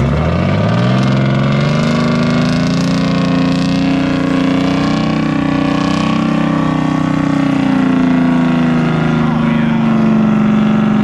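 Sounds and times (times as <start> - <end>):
diesel truck engine revving: 0.0 - 11.0.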